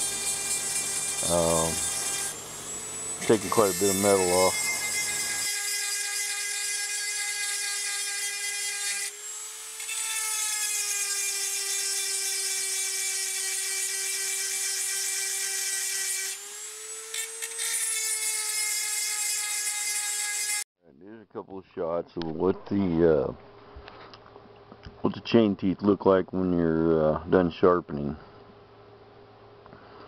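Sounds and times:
rotary tool grinding metal: 0.0s - 20.7s.

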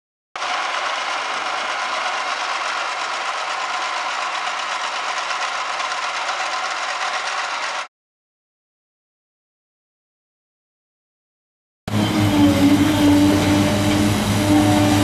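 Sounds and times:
appliance buzzing: 0.4s - 7.9s, 11.9s - 15.0s.

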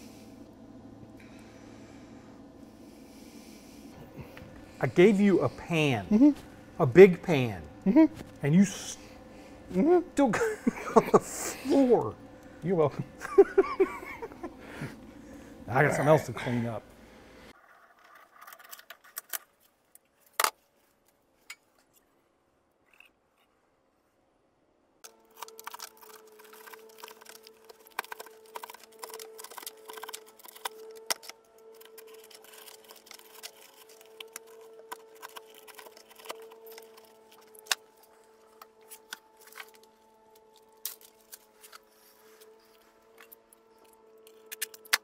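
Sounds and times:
steady low tone: 0.0s - 17.6s
metallic clicks and scraping: 17.6s - 20.6s, 25.0s - 45.0s.

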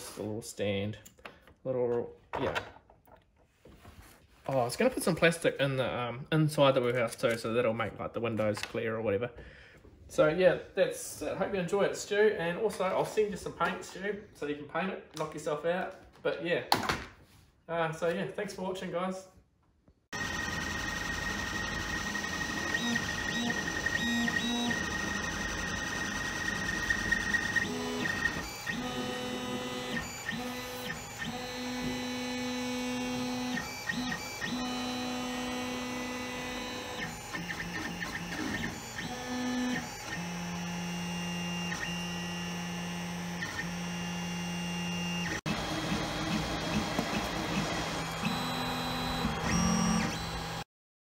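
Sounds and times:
stepper motors whining: 20.2s - 50.7s.

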